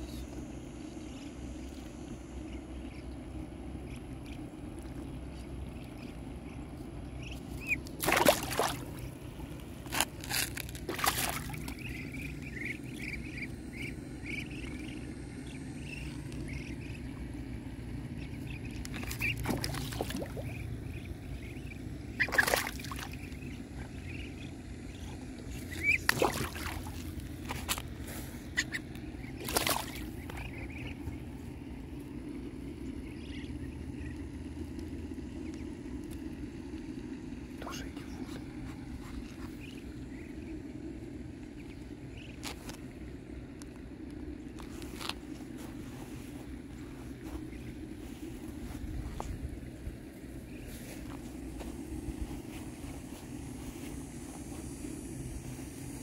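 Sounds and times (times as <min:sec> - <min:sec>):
duckling peeps: 0:00.0 - 0:42.9
low outdoor rumble: 0:00.0 - 0:56.0
pond water splashing: 0:07.5 - 0:14.9, 0:15.7 - 0:32.0.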